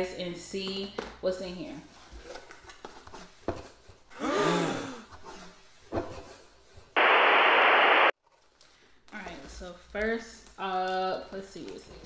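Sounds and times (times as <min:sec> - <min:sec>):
burst of static hiss: 0:07.0 - 0:08.2.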